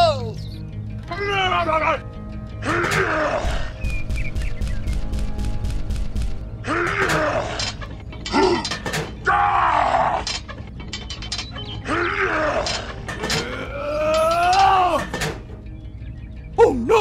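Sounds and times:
scattered clicks: 3.8s - 6.4s
person straining groans and grunts: 11.9s - 15.0s.

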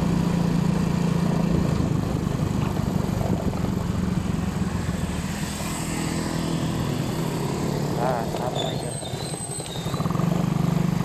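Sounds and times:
small engine running: 0.1s - 11.0s.

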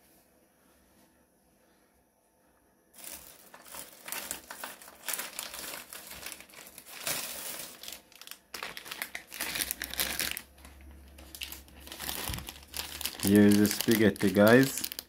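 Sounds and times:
plastic wrapping crinkling: 3.0s - 15.0s.

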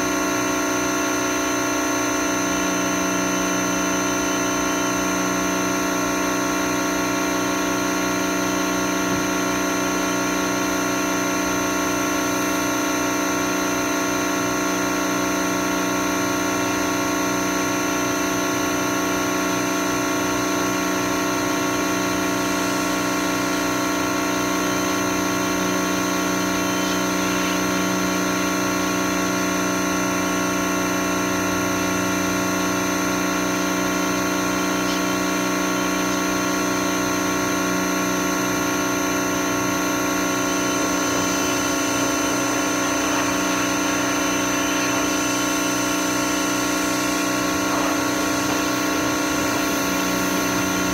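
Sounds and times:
pressure washer hum: 0.0s - 50.9s
water spray hissing: 40.4s - 50.9s.

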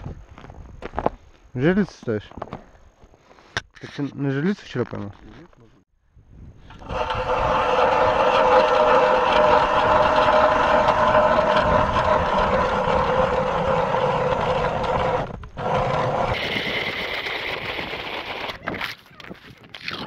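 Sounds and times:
ice auger grinding through ice: 6.6s - 19.1s.

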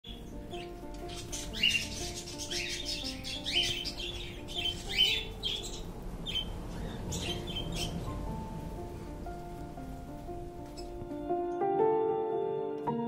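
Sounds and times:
soft background music: 0.0s - 13.0s
rising bird chirps: 0.1s - 8.5s.

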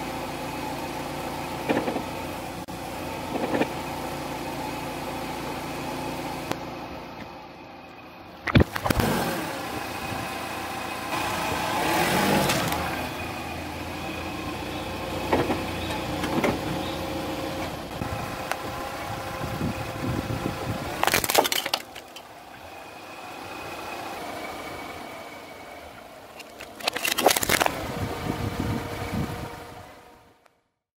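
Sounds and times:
car running at low speed: 0.0s - 30.8s
tyre crunching plastic piece: 20.9s - 22.2s, 26.4s - 27.8s
tyre crushing plastic straws: 20.9s - 22.2s, 26.4s - 27.8s.

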